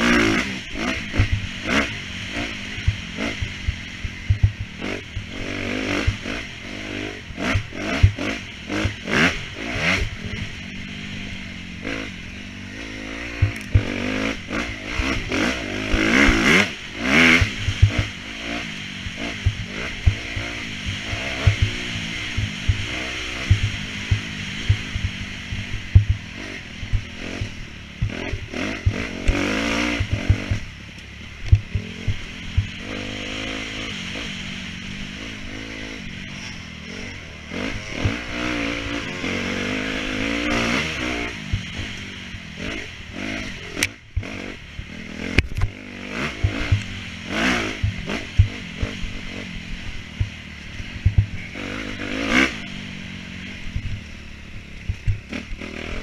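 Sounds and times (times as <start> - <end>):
dirt bike engine revving: 0.0 - 56.0
low thumps and clatter: 0.8 - 6.5, 7.3 - 9.2, 13.2 - 18.2, 19.0 - 34.2, 36.2 - 49.4, 50.0 - 50.4, 51.0 - 51.6, 53.7 - 54.0, 54.6 - 56.0.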